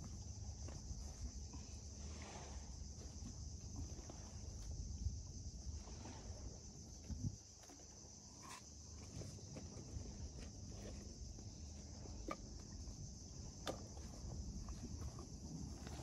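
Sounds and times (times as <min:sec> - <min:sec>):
insects chirring: 0:00.0 - 0:16.0.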